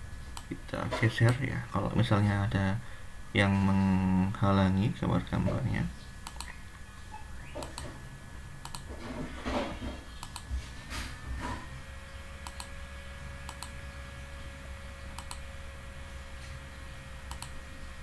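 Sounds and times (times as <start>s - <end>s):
faint steady hum: 0.0s - 18.0s
computer mouse clicking: 6.2s - 6.6s, 7.6s - 8.0s, 8.6s - 8.9s, 10.2s - 10.5s, 12.4s - 12.7s, 13.4s - 13.8s, 15.1s - 15.4s, 17.3s - 17.6s.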